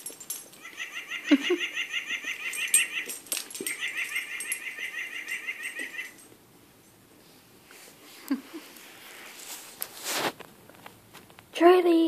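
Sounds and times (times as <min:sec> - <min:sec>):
squeaky toy chirping: 0:00.6 - 0:06.2.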